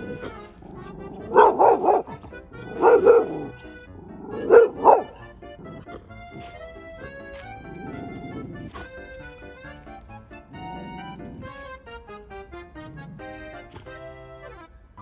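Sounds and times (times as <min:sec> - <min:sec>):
background music: 0:00.0 - 0:15.0
dog barking: 0:00.2 - 0:03.6, 0:04.2 - 0:05.6.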